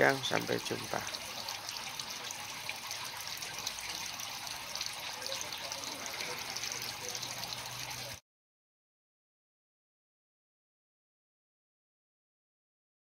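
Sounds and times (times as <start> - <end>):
water trickling: 0.0 - 8.2.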